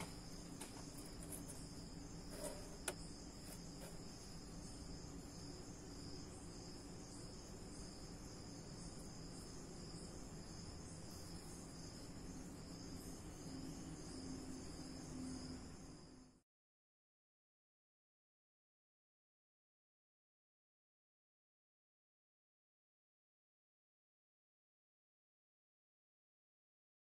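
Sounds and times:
insects chirring: 0.0 - 16.4.

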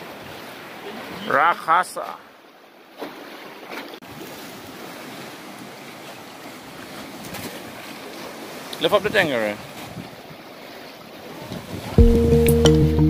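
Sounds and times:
sea water washing against wall: 3.0 - 12.0
wind buffeting microphone: 9.0 - 10.4, 11.4 - 12.1.

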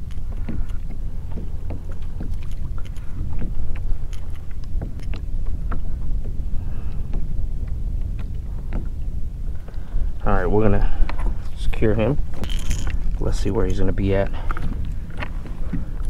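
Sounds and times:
water lapping at kayak hull: 0.0 - 16.0
wind buffeting microphone: 0.0 - 16.0.

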